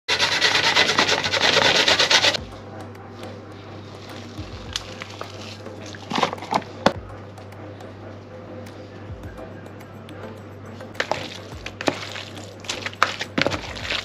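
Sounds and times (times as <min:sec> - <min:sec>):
onion grated on metal grater: 0:00.1 - 0:02.4
spoon scooping minced meat: 0:11.0 - 0:14.0.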